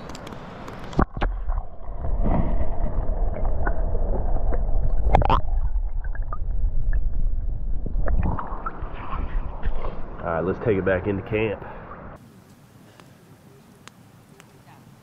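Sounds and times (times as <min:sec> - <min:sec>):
underwater river rumble and gurgle: 0:00.9 - 0:12.2.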